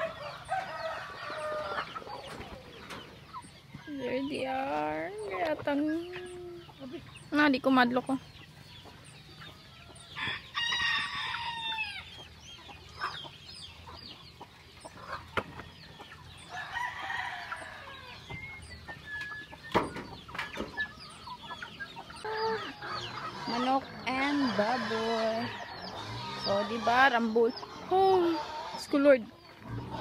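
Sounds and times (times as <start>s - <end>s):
roosters crowing: 0.0s - 5.4s, 9.5s - 12.4s, 16.2s - 30.0s
chickens clucking: 0.0s - 30.0s.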